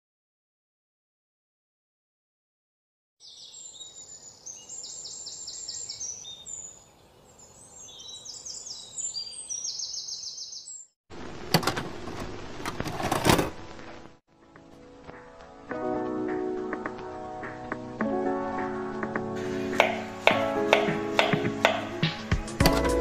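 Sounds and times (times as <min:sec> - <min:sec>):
songbirds trilling chirps: 0:03.2 - 0:11.0
knocks on wooden cutting board: 0:19.8 - 0:21.9.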